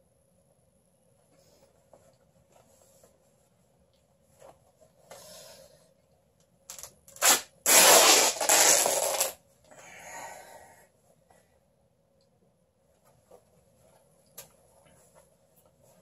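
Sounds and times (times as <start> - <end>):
cloth tearing: 6.7 - 9.4.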